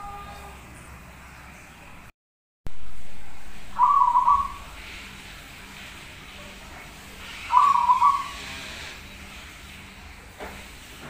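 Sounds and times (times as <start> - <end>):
dove cooing: 3.8 - 4.8, 7.5 - 8.5.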